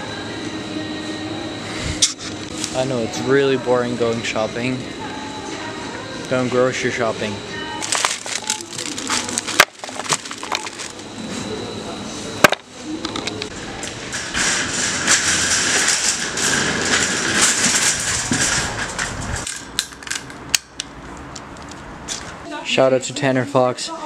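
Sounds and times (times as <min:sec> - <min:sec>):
wire shopping cart rattling: 0:07.8 - 0:11.0, 0:13.8 - 0:20.0.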